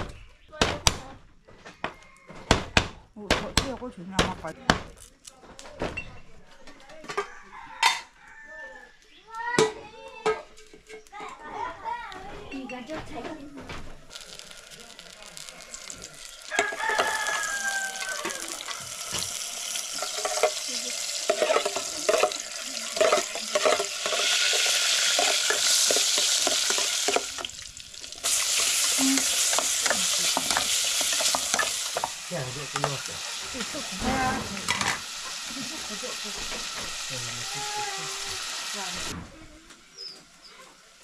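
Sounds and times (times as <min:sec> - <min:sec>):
food sizzling in a pan: 0:12.0 - 0:41.0
clinks and scrapes of stirring: 0:14.1 - 0:27.6, 0:28.2 - 0:35.4.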